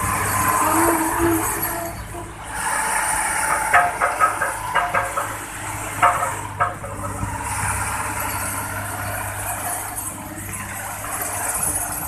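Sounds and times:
road roller diesel engine running: 0.0s - 12.0s
sharp clacks: 3.5s - 5.4s.

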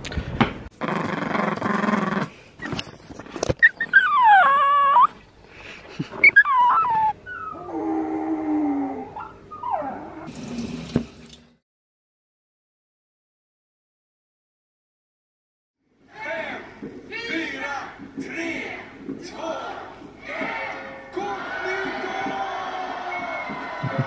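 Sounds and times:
dog whining and howling: 3.6s - 5.2s, 6.2s - 10.3s.

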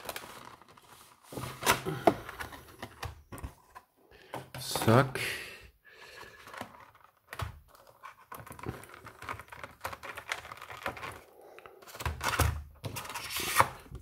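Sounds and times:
plastic packaging crinkling: 0.0s - 2.8s, 6.4s - 11.5s.

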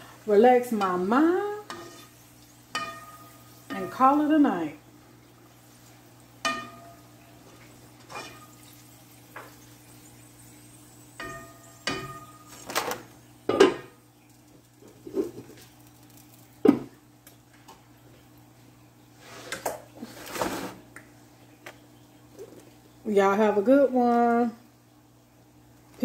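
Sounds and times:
metal skimmer knocking on pot: 6.5s - 7.0s.

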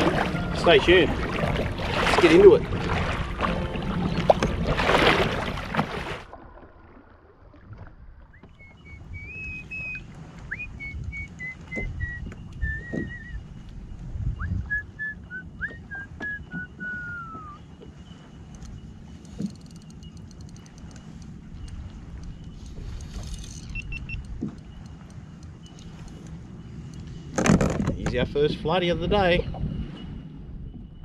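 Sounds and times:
rumble of wind and water: 0.0s - 31.0s
person whistling a tune: 8.8s - 13.4s, 14.4s - 17.6s.

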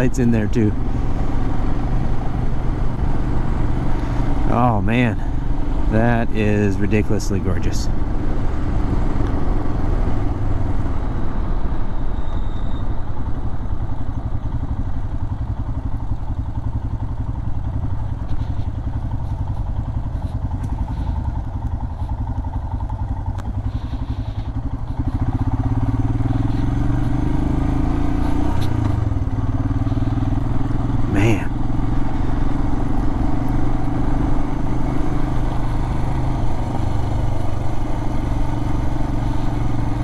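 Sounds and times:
motorcycle engine running: 0.0s - 40.0s.

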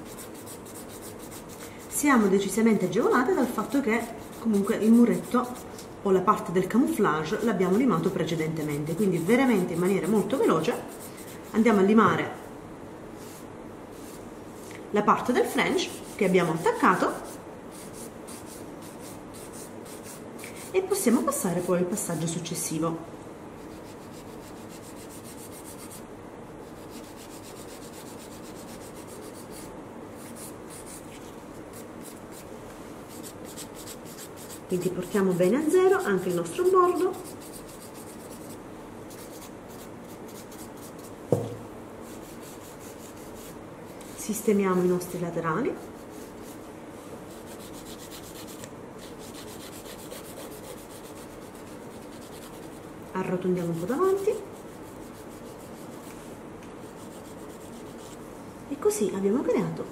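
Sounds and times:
nail file rasping: 0.0s - 1.7s, 26.8s - 31.0s, 33.1s - 41.1s, 47.3s - 52.8s.

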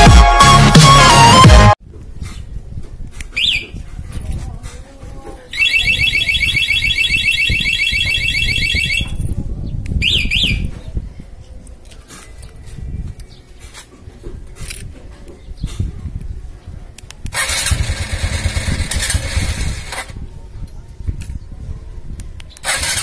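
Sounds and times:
warbling alarm siren: 5.6s - 9.1s
motorcycle alarm chirps: 5.6s - 9.2s.

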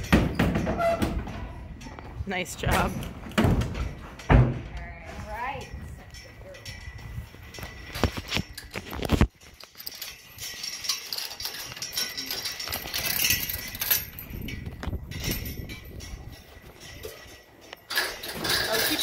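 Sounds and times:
hooves knocking on trailer floor: 0.0s - 8.2s.

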